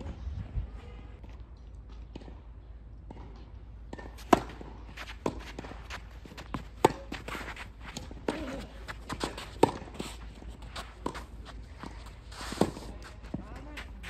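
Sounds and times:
tennis ball struck by rackets: 3.9 - 7.3, 7.9 - 10.1
shoes scuffing on court: 4.1 - 14.0.

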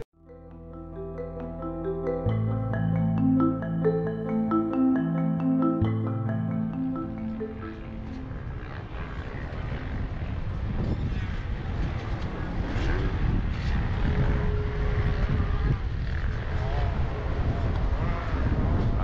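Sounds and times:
wind buffeting microphone: 8.0 - 19.0.

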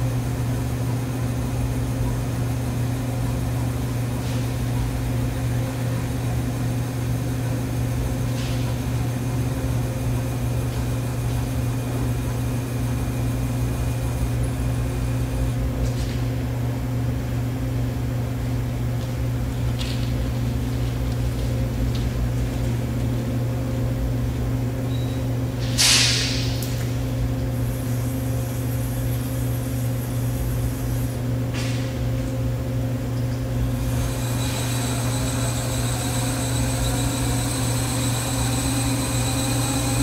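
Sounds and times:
milling machine electric hum: 0.0 - 25.6, 26.6 - 40.0
thin high whine: 33.6 - 40.0.

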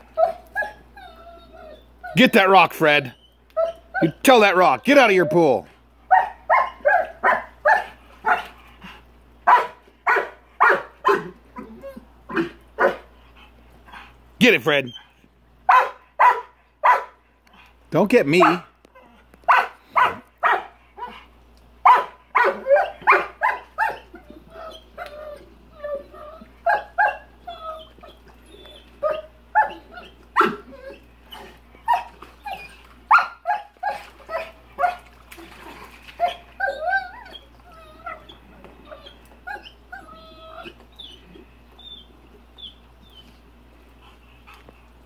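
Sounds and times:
dog whining: 0.0 - 2.5, 3.2 - 4.2, 9.5 - 13.0, 21.9 - 35.0, 36.1 - 43.4
dog barking: 6.1 - 8.5, 9.5 - 11.3, 12.3 - 13.0, 15.7 - 17.2, 18.4 - 18.7, 19.5 - 20.8, 21.8 - 24.0.

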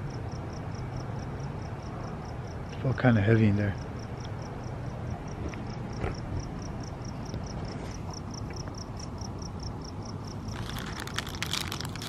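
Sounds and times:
cricket chirping: 0.0 - 12.0
paper bag crinkling: 10.5 - 12.0.

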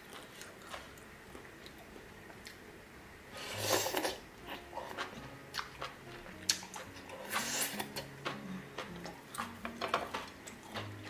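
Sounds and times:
person chewing: 0.0 - 2.6, 3.5 - 11.0
slurping noodles: 7.2 - 7.9.

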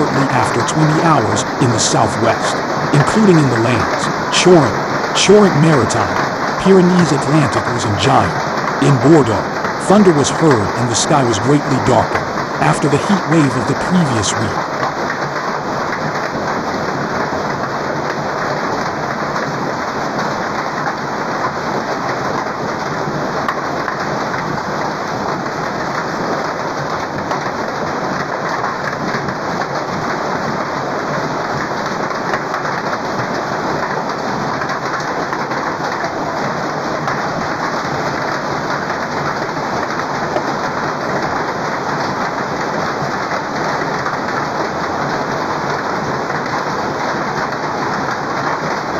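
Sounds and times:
hail and heavy rain pelting: 14.6 - 48.9.

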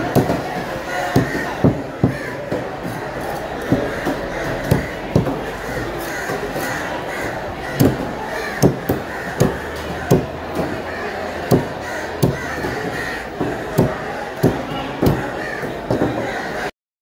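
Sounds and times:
steady background noise: 0.0 - 16.7
cleaver chopping on wooden block: 3.7 - 5.4, 7.7 - 10.8, 11.4 - 15.3.

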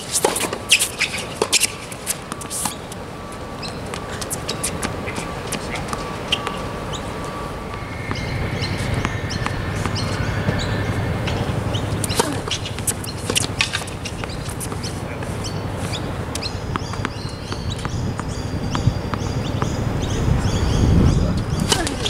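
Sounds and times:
steady low rumble: 1.3 - 22.0
small birds chirping: 3.6 - 7.2, 7.8 - 22.0
tennis ball struck by rackets: 7.7 - 20.1, 21.6 - 22.0.

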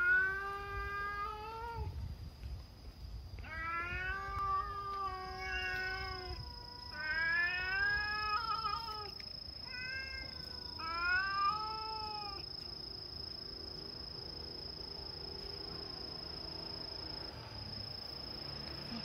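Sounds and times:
cats yowling: 0.0 - 1.9, 3.4 - 12.4.

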